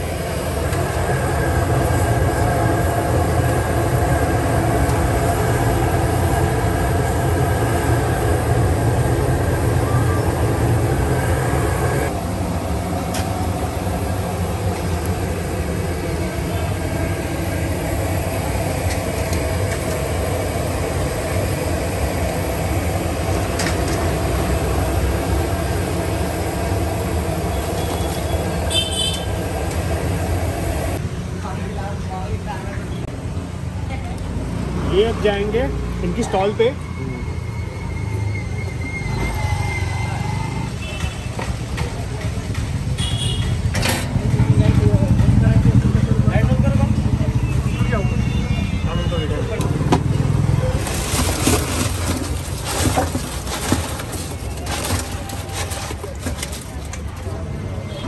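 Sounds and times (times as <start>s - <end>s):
loud mechanical roar: 0.0s - 31.0s, 49.3s - 56.5s.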